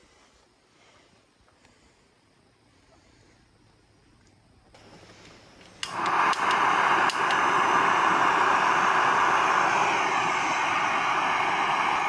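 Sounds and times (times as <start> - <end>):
gas flame hissing: 4.8 - 12.0
stove igniter clicks: 5.6 - 8.0.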